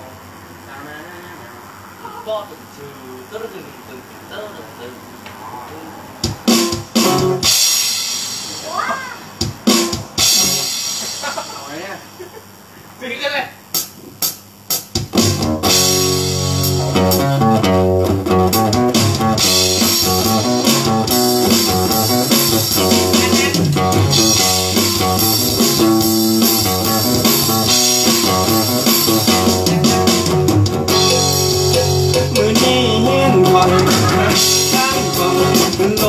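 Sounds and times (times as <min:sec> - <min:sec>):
electric guitar: 0:05.4 - 0:11.5, 0:15.0 - 0:36.0
bass guitar: 0:06.0 - 0:09.0, 0:09.6 - 0:11.4, 0:15.0 - 0:36.0
drum kit: 0:06.1 - 0:12.0, 0:13.7 - 0:36.0.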